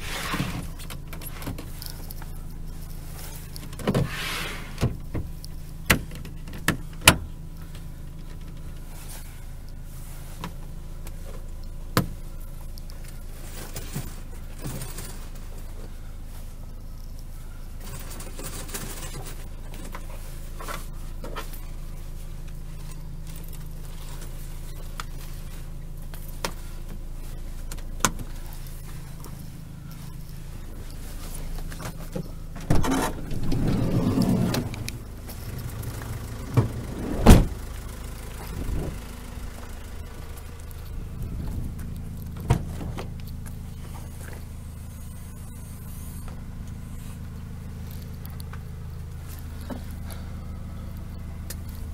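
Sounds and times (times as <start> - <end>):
diesel engine running: 0.0 - 51.9.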